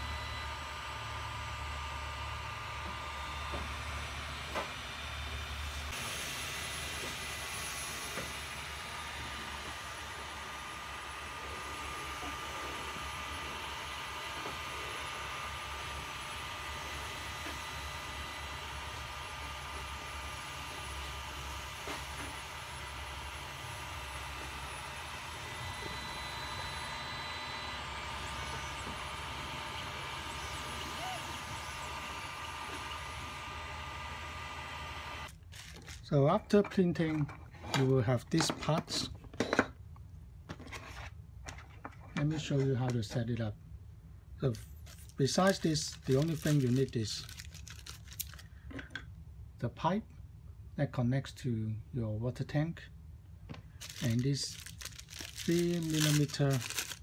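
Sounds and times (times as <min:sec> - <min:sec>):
faint high whines: 0:00.0 - 0:35.3
low motor hum: 0:00.0 - 0:36.0
printer fans whirring: 0:00.0 - 0:38.8, 0:44.4 - 0:48.4, 0:53.8 - 0:57.0.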